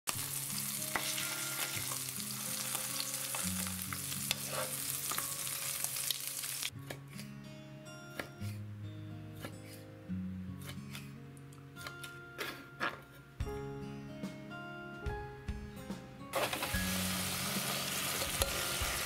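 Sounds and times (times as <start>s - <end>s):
fish sizzling in frying pan: 0.1s - 6.7s, 16.4s - 19.0s
soft plucked background music: 0.1s - 19.0s.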